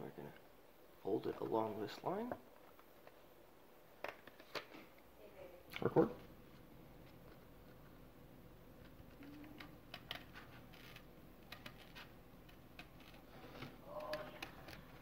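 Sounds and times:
paper rustling: 8.8s - 15.0s
scissors snipping paper: 8.8s - 15.0s.

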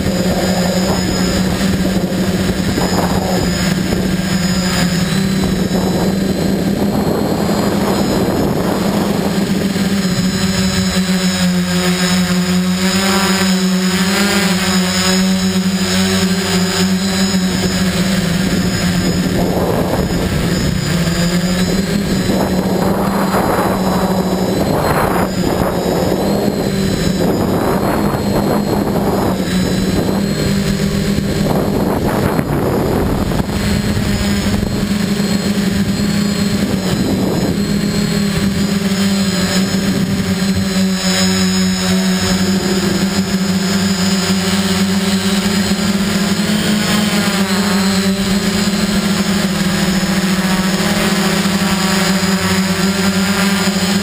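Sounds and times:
wind buffeting microphone: 0.0s - 11.8s, 15.2s - 46.5s
quadcopter motors buzzing: 0.0s - 54.0s.

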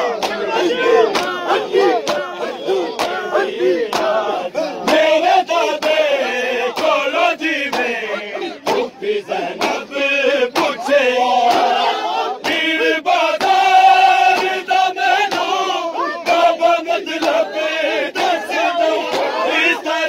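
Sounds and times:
crowd of men chanting: 0.0s - 20.0s
hands slapping chests: 0.1s - 5.1s, 5.8s - 7.0s, 7.7s - 8.0s, 8.6s - 9.9s, 10.5s - 10.8s, 11.4s - 11.8s, 12.4s - 12.7s, 13.3s - 14.6s, 15.2s - 15.6s, 17.2s - 17.5s.

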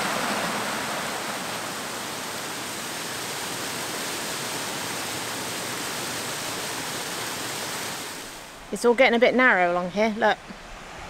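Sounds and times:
waterfall rushing: 0.0s - 8.7s.

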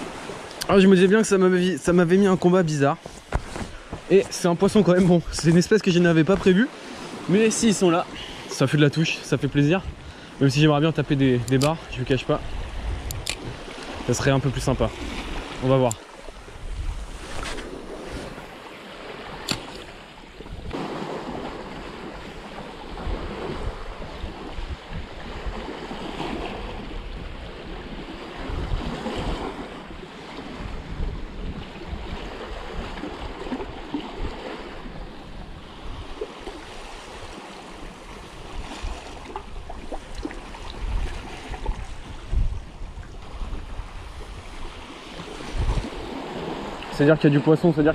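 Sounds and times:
wind buffeting microphone: 9.5s - 36.4s, 37.9s - 46.8s
sharp click: 11.4s - 11.8s, 13.0s - 13.4s, 19.4s - 19.8s.

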